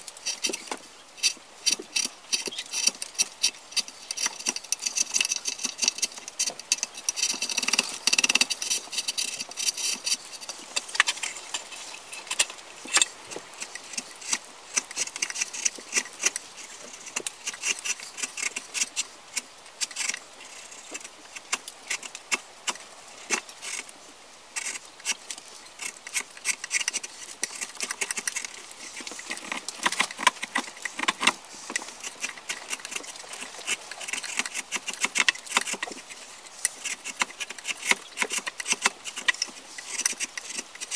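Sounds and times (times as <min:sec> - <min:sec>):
chisel scraping wood: 0:00.0 - 0:23.9, 0:24.6 - 0:40.9.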